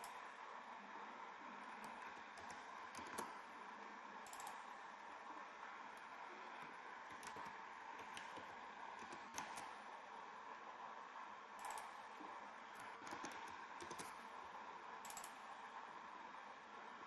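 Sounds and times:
faint steady hiss: 0.0s - 17.0s
keyboard typing: 1.8s - 3.4s, 4.2s - 4.7s, 6.4s - 9.8s, 11.6s - 12.0s, 12.8s - 14.2s, 15.0s - 15.4s.

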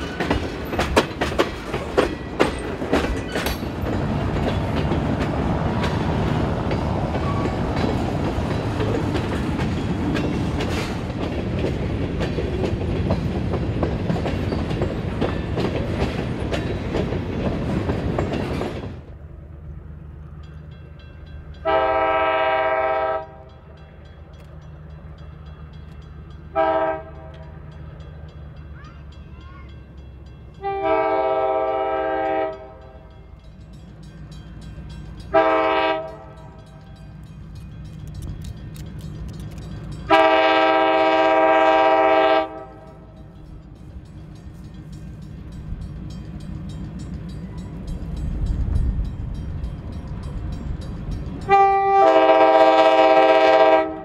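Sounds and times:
diesel locomotive humming: 0.0s - 54.0s
freight cars rumbling on rails: 0.0s - 54.0s
locomotive air horn blasts: 21.6s - 23.5s, 26.5s - 27.5s, 30.6s - 33.1s, 35.3s - 36.6s, 40.1s - 43.0s, 51.5s - 54.0s.

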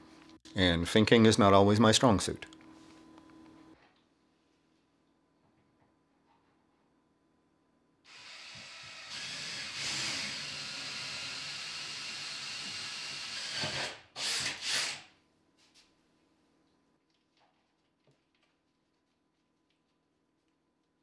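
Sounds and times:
cordless drill boring into wood: 8.1s - 15.1s.

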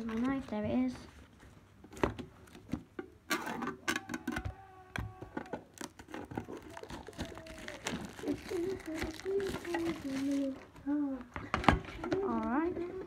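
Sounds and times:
shrink-wrap crackling: 5.5s - 13.0s
knife slitting plastic wrap: 5.8s - 10.6s.

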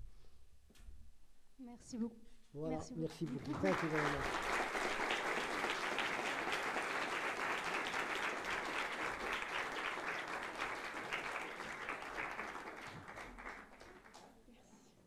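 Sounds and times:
audience applauding: 3.1s - 14.4s.

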